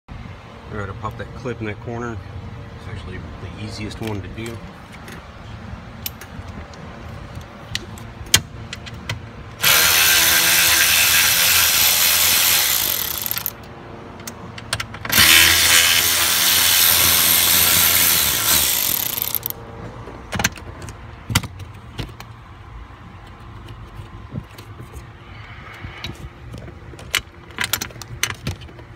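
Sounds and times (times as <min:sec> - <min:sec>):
drill-driver spinning screw: 0:09.6 - 0:13.5, 0:15.1 - 0:19.5.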